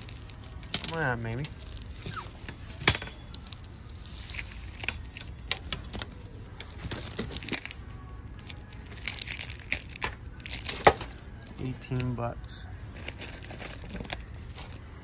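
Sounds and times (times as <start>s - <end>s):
metal trim strips clicking and rattling: 0.0s - 1.8s.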